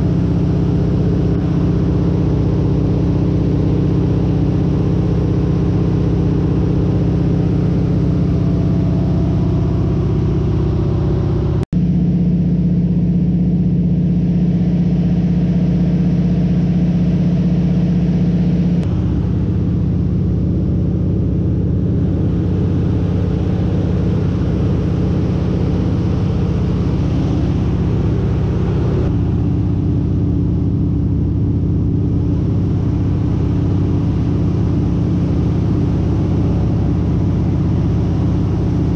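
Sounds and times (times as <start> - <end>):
propeller airplane engine in cockpit: 0.0 - 38.9.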